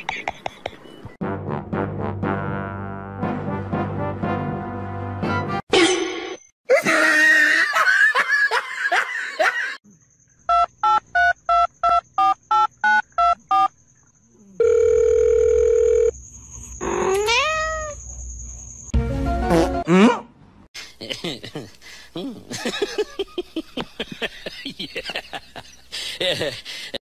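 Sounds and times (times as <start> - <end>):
steady phone tone: 14.6 - 16.2
cat meowing: 17.0 - 18.0.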